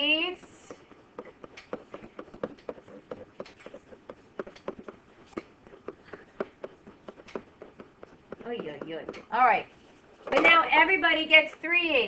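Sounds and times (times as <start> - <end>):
pen tapping on hard surface: 0.6 - 9.4.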